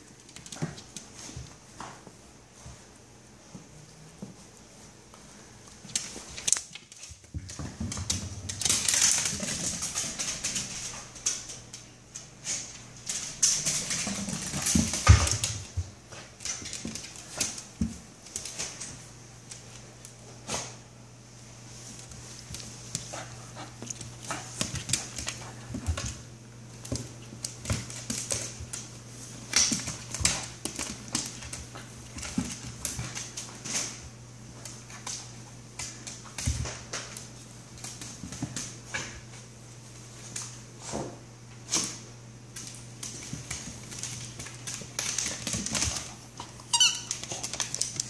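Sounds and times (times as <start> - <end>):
dog claws clicking on wooden floor: 5.7 - 20.2, 21.9 - 39.4, 41.7 - 48.0.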